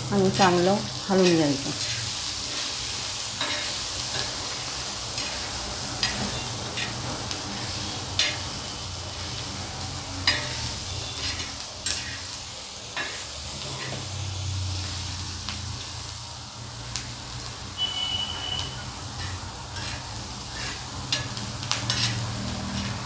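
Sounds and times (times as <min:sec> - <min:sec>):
food sizzling in oil: 0:00.0 - 0:23.0
metal spoon scraping griddle: 0:01.2 - 0:09.4, 0:10.1 - 0:12.4, 0:13.0 - 0:14.1, 0:18.4 - 0:23.0.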